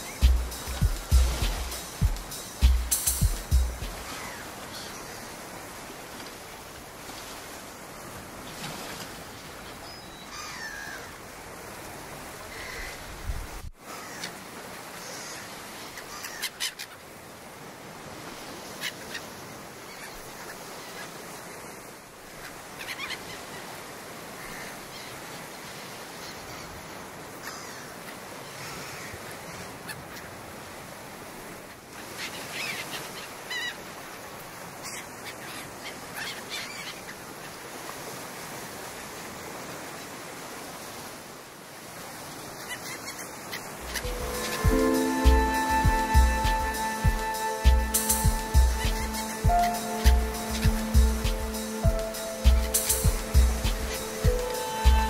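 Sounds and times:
water washing: 0:00.0 - 0:04.1, 0:43.8 - 0:55.0.

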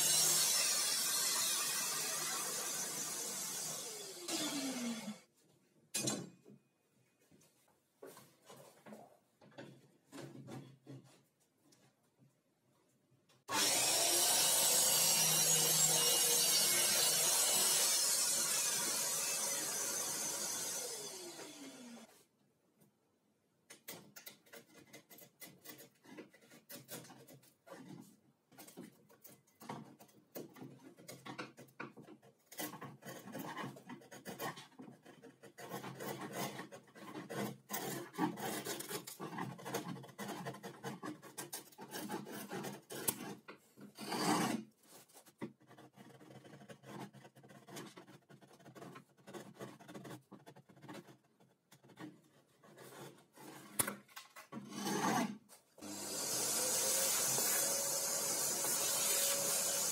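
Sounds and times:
chisel scraping wood: 0:23.8 - 0:55.5.

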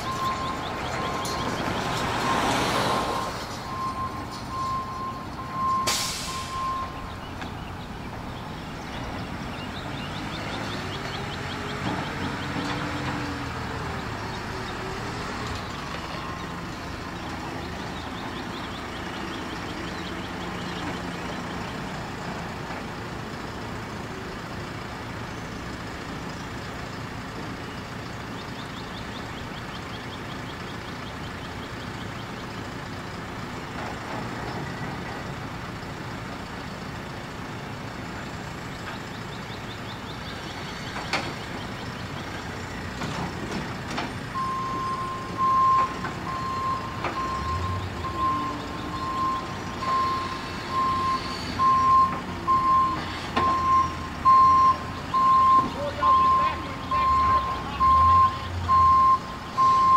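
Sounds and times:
reversing alarm beeping: 0:00.0 - 0:07.2, 0:44.3 - 0:59.9
diesel engine running: 0:00.0 - 0:59.9.

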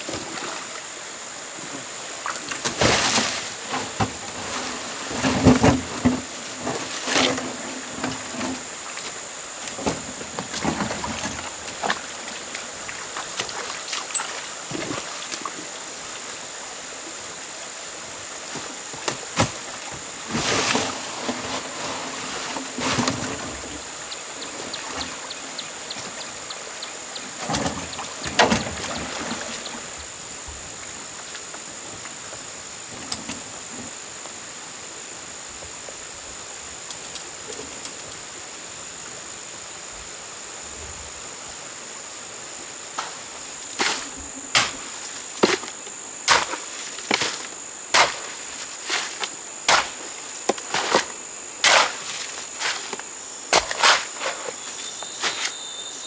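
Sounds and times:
high-pitched insect drone: 0:46.8 - 0:56.0.

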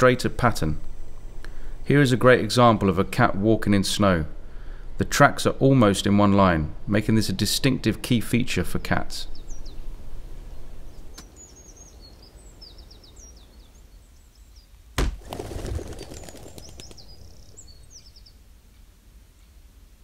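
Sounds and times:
small birds chirping: 0:06.8 - 0:19.6
sharp thunk: 0:15.0 - 0:15.2
brief rattling: 0:15.0 - 0:18.2.

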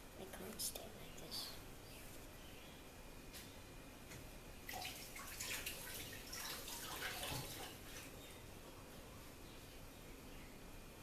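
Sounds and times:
water running from a tap: 0:04.7 - 0:07.8
hands washing under water: 0:04.7 - 0:08.1.

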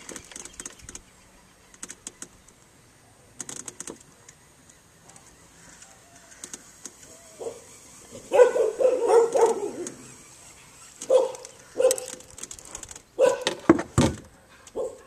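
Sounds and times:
dog barking: 0:07.4 - 0:07.6, 0:08.3 - 0:09.8, 0:11.1 - 0:12.1, 0:13.2 - 0:13.5, 0:14.8 - 0:15.0.

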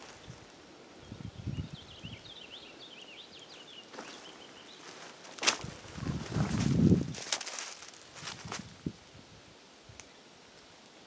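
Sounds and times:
small bird chirping: 0:00.0 - 0:05.0
soft footsteps: 0:03.9 - 0:08.7.

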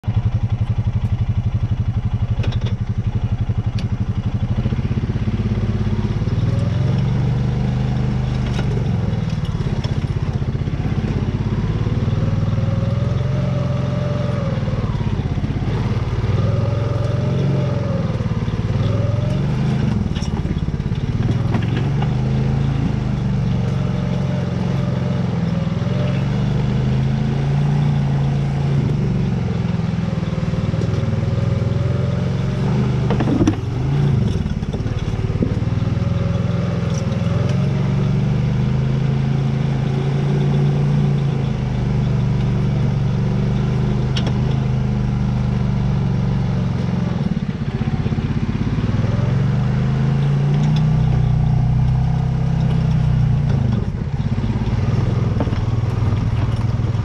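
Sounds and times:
atv engine climbing under load: 0:00.0 - 0:57.0
sharp clicks and knocks: 0:02.3 - 0:03.0, 0:15.7 - 0:24.3, 0:32.6 - 0:37.7, 0:43.5 - 0:44.7, 0:50.1 - 0:57.0.

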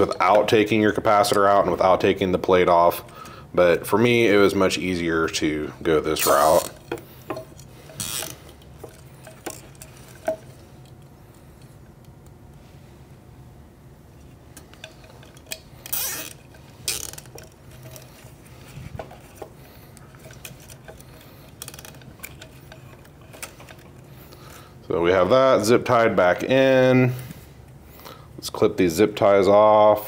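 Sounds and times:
parts clicking and knocking: 0:06.3 - 0:12.4, 0:14.5 - 0:24.6
zip ties rasping tight: 0:15.8 - 0:17.3.

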